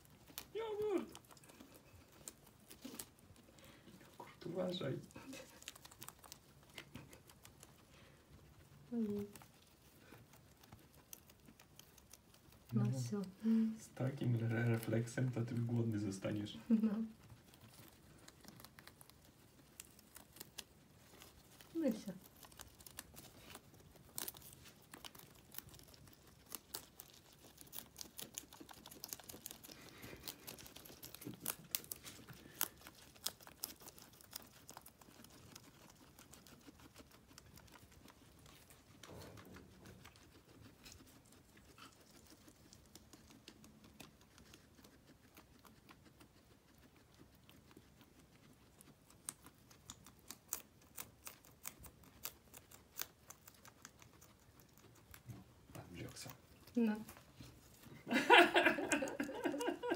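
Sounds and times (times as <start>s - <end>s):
guinea pigs chewing grass: 0.0s - 59.9s
leaf rustling: 17.8s - 37.0s.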